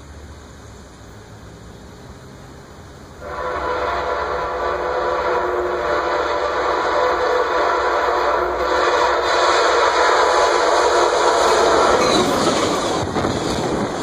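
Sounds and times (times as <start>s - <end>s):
train horn blast: 3.2s - 13.0s.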